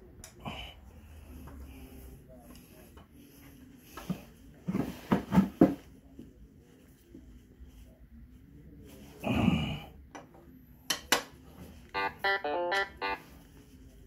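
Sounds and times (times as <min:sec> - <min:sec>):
plucked guitar-like melody: 0:12.0 - 0:13.2.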